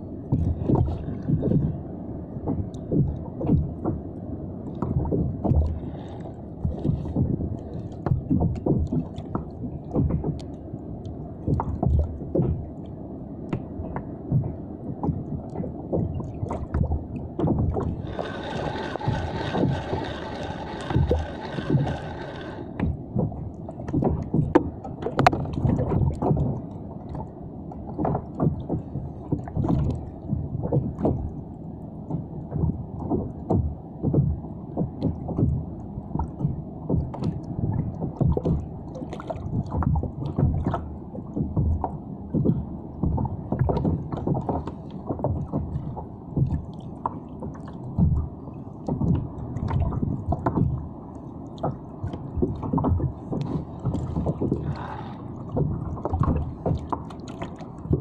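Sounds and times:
water lapping against kayak hull: 0.0 - 12.8, 13.5 - 31.4, 32.1 - 58.0
fishing reel whirring: 18.1 - 22.8.

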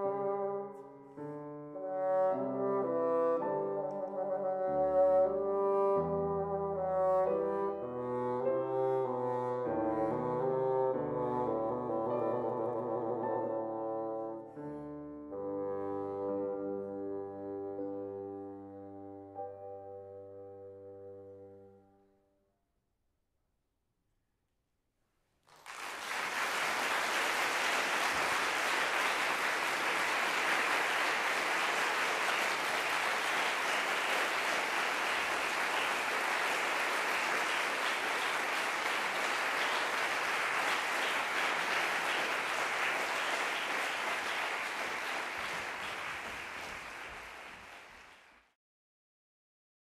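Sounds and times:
audience clapping: 25.4 - 48.6.

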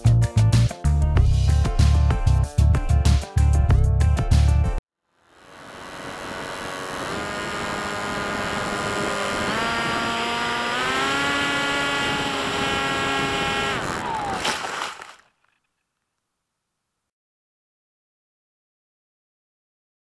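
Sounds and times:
electric motor and propeller whine: 5.1 - 14.8.

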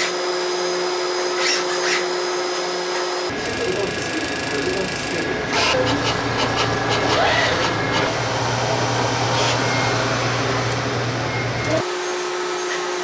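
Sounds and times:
constant low hum: 3.3 - 11.8
dispensing machine whirring: 3.3 - 12.9.

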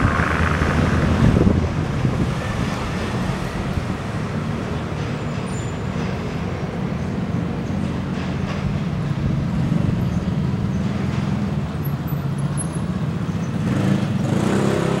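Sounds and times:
engine running: 0.0 - 7.1.

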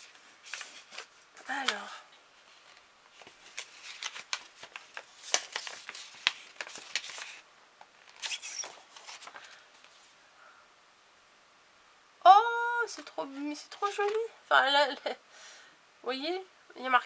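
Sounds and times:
paper rustling and crinkling: 0.0 - 10.2.

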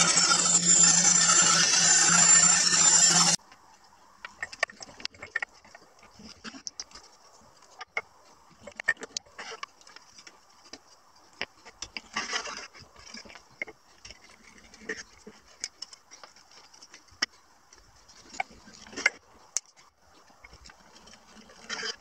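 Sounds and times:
short rasping burst: 0.0 - 3.4
plywood pieces clicking and scraping: 0.0 - 22.0.

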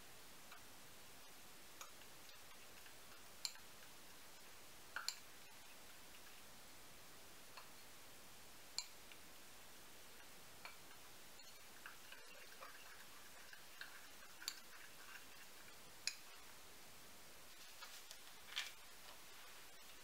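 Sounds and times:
spoon scraping in glass bowl: 11.4 - 16.4.

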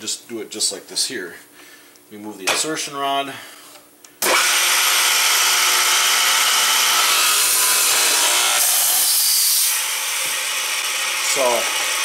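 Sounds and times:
boring machine whirring and cutting: 4.2 - 12.0.

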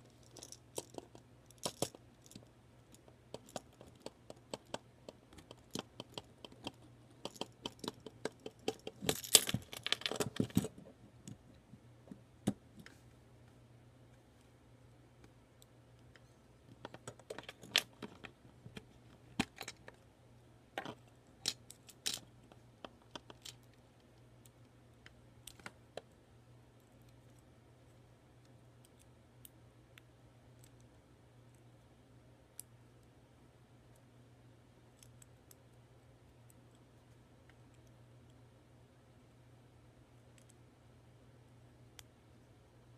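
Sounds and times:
low steady hum: 0.0 - 42.9
plastic lego pieces clicking: 3.3 - 10.7.

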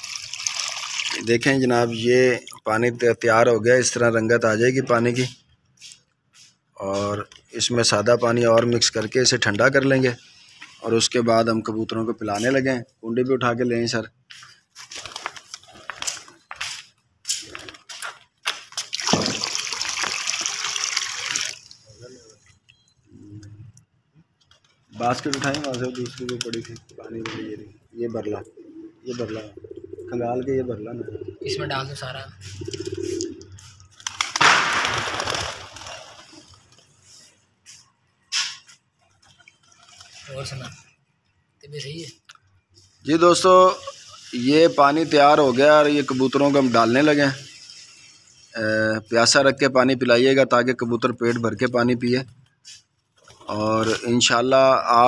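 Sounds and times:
water pouring: 0.0 - 2.7, 18.7 - 22.0
short water splash: 18.9 - 21.6.

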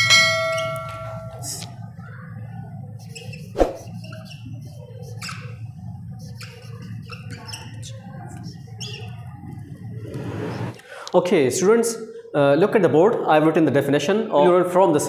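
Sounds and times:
steady low hum: 0.0 - 12.6
marker squeaking on whiteboard: 3.0 - 9.8.

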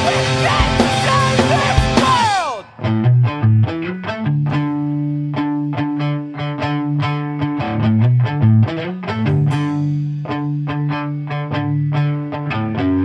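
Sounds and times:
drums: 0.0 - 2.8, 9.3 - 10.3
distorted electric guitar riff: 0.0 - 13.0.

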